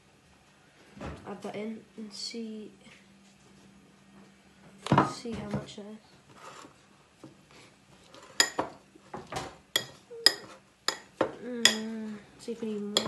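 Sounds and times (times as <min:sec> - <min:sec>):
metal fork clinking on ceramic bowl: 0:09.8 - 0:11.8.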